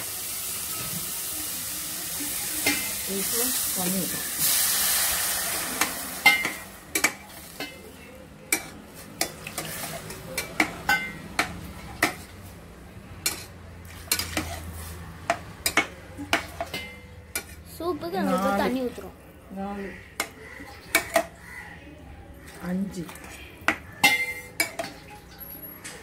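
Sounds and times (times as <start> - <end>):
spoon clinking in steel pot: 6.2 - 7.9, 8.5 - 12.2, 23.7 - 25.5.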